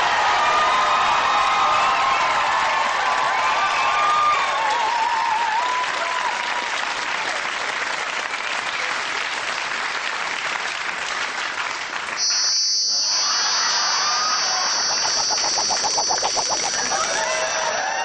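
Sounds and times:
audience applauding and cheering: 0:00.0 - 0:12.3
high-pitched electronic whirr: 0:12.2 - 0:17.8.

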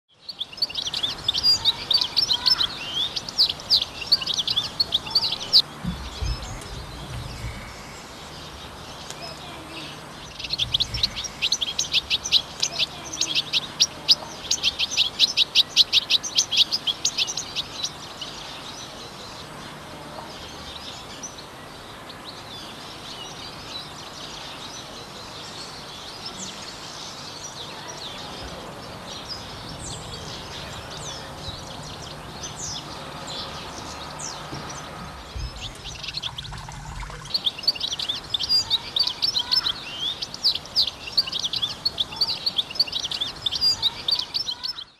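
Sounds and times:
goldfinch twittering song: 0:00.1 - 0:44.9.

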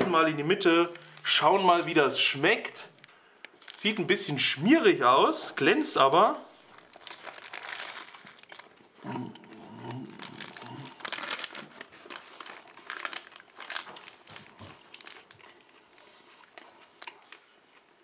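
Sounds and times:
paper wrapper crinkling: 0:00.3 - 0:04.6, 0:05.8 - 0:17.4
person chewing food: 0:12.1 - 0:18.0.

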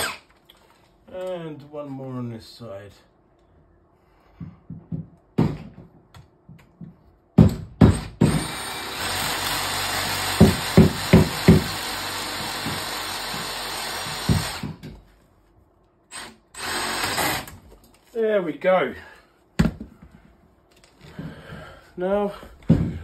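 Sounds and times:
heavy knocks: 0:10.0 - 0:11.8, 0:22.6 - 0:23.0
cordless drill driving screw: 0:16.1 - 0:17.5.

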